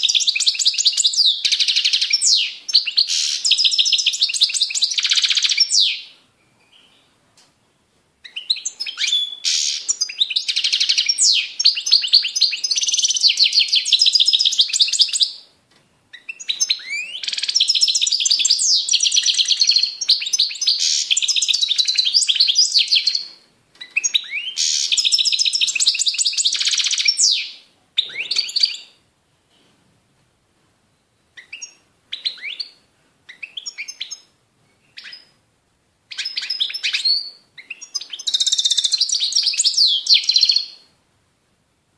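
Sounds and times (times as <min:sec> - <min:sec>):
bird twittering song: 0:00.0 - 0:07.2, 0:08.2 - 0:15.4, 0:16.1 - 0:29.0, 0:31.3 - 0:35.4, 0:36.1 - 0:40.9.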